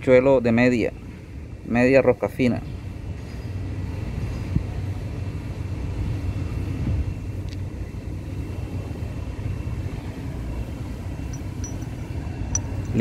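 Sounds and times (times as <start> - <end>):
machinery rumble: 2.7 - 13.0
faint high whine: 6.3 - 13.0.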